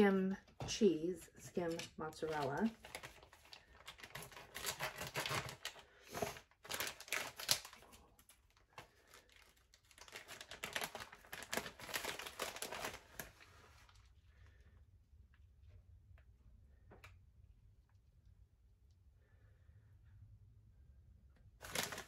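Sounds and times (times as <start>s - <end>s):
plastic bag crinkling: 1.4s - 14.1s, 21.6s - 22.0s.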